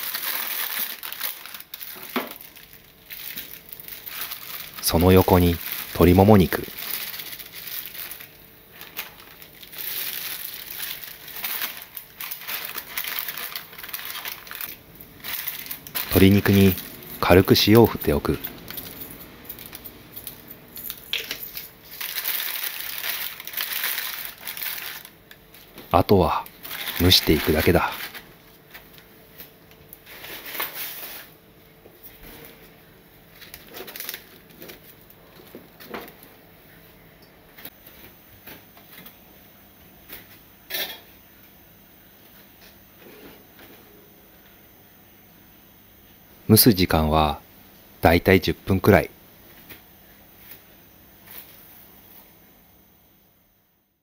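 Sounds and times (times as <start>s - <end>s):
parchment paper crinkling: 0.0s - 18.3s, 21.5s - 25.6s, 26.6s - 28.9s.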